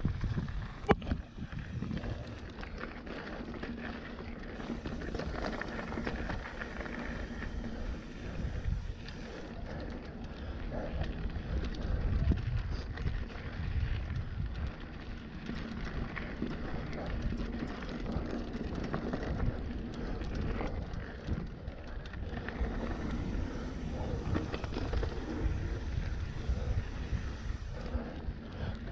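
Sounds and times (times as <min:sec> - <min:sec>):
wind buffeting microphone: 0:00.0 - 0:02.7, 0:04.6 - 0:28.9
bike rattling: 0:00.0 - 0:28.9
tyres rolling on dirt and rock: 0:00.2 - 0:28.9.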